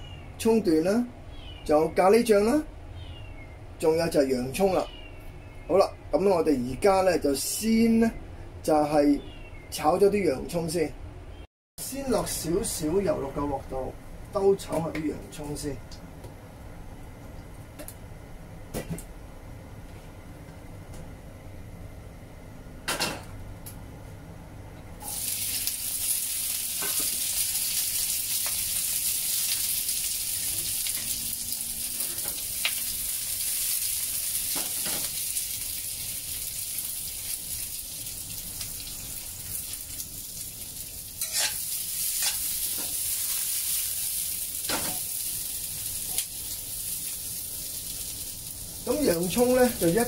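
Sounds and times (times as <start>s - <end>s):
onions sizzling in oil: 25.0s - 50.0s
spatula knocking and scraping wok: 41.2s - 41.6s, 42.2s - 43.0s.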